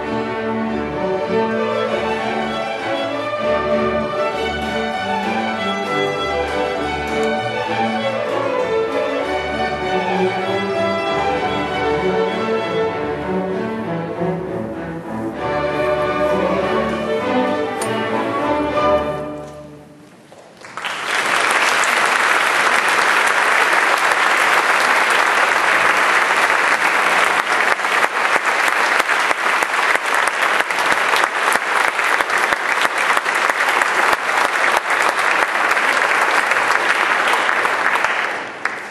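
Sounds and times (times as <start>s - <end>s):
audience applause: 20.2s - 38.9s.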